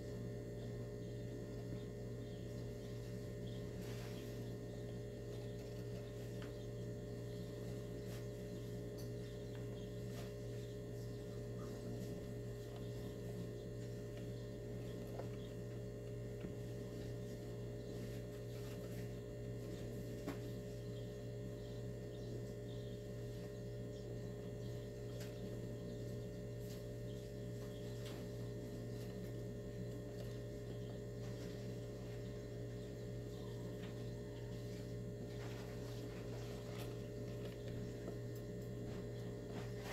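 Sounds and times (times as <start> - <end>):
low electrical hum: 0.0 - 39.9.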